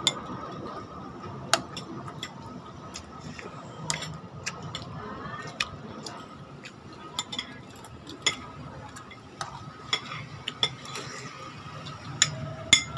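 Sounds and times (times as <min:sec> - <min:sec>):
cutlery clinking on ceramic plates: 0:07.1 - 0:07.6, 0:12.2 - 0:12.9.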